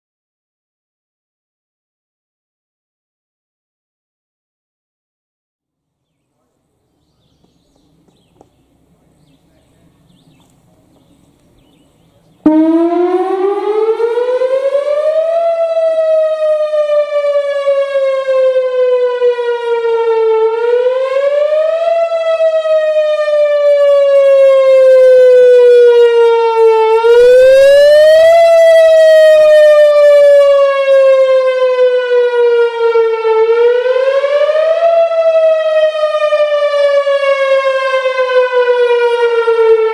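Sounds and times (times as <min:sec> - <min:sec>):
warning siren wailing: 0:12.0 - 0:39.9.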